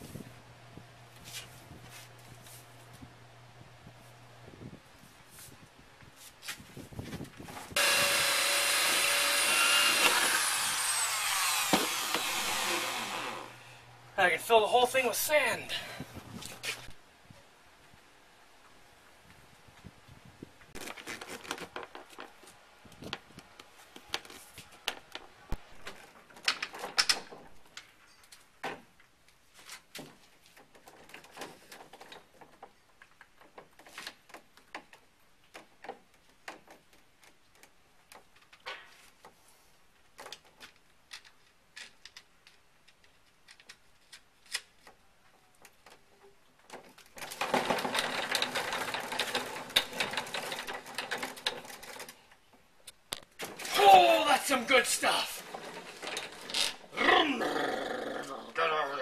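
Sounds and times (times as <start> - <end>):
plastic steering wheel rattling: 47.1 - 52.2.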